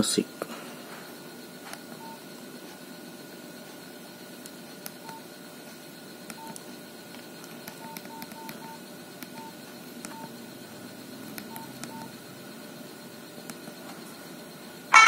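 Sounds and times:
steady hum: 0:00.0 - 0:15.0
phone keypad beeps: 0:06.3 - 0:06.6, 0:07.7 - 0:10.4, 0:11.4 - 0:12.1.

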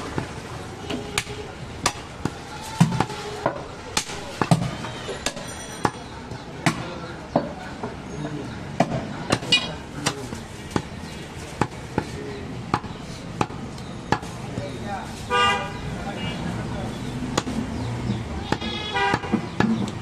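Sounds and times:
cleaver chopping meat on wood: 0:17.3 - 0:17.6.

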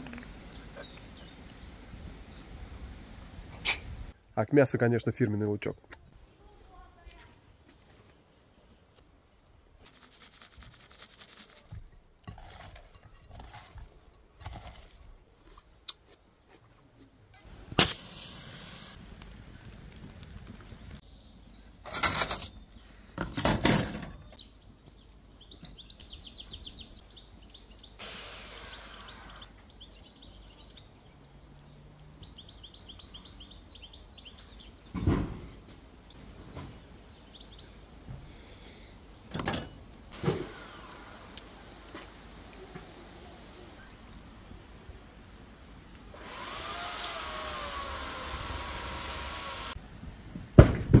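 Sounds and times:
birds chirping: 0:00.0 - 0:03.8, 0:24.0 - 0:40.2.

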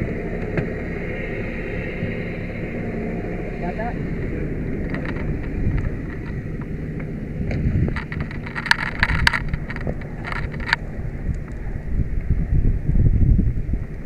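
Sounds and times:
diesel engine idling: 0:00.0 - 0:14.0
wind on microphone: 0:00.0 - 0:14.0
clicks and clanks of gear: 0:04.8 - 0:06.4, 0:07.5 - 0:10.8.

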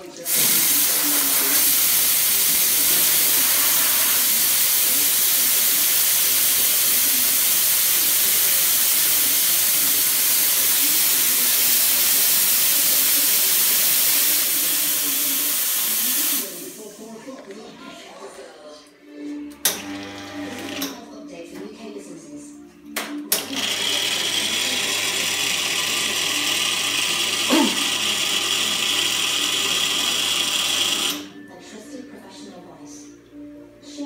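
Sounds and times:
espresso machine steam wand hissing: 0:00.2 - 0:17.0, 0:23.6 - 0:31.3.

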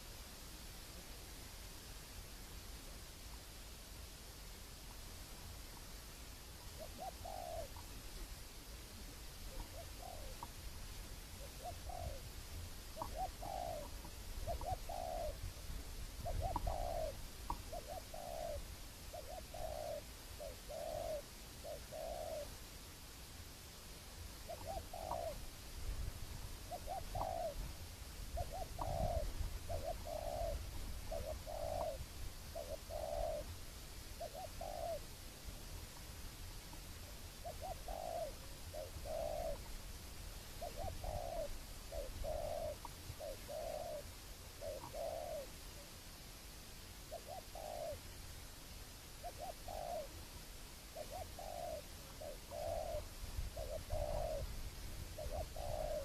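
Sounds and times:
dove cooing: 0:06.6 - 0:10.6, 0:11.2 - 0:22.6, 0:24.4 - 0:25.5, 0:26.6 - 0:33.6, 0:34.2 - 0:35.1, 0:36.7 - 0:39.8, 0:40.5 - 0:45.9, 0:47.1 - 0:48.1, 0:49.2 - 0:50.3, 0:50.9 - 0:56.0.

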